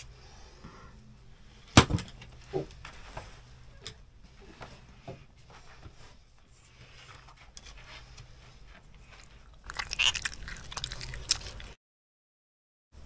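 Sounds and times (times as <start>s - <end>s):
person chewing and crunching: 9.0s - 11.8s.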